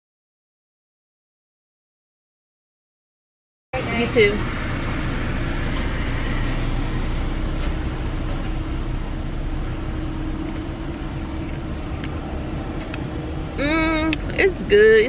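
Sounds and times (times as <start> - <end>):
car idling from inside cabin: 3.8 - 15.0.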